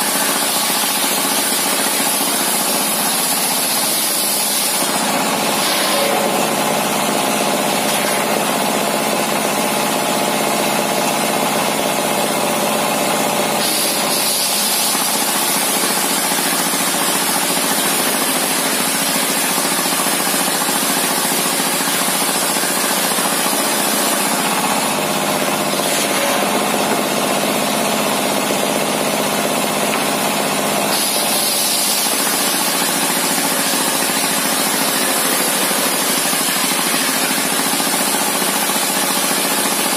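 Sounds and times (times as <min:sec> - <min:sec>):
saw blade hissing through wood: 0:13.6 - 0:17.0, 0:30.8 - 0:37.5
diesel engine running: 0:20.0 - 0:30.9.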